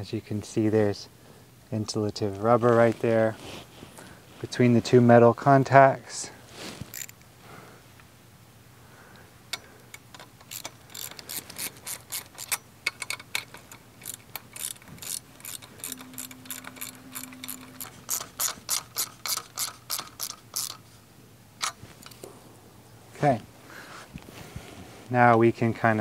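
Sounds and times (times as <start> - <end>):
ratchet wrench clicking: 6.9 - 7.2, 9.5 - 20.8.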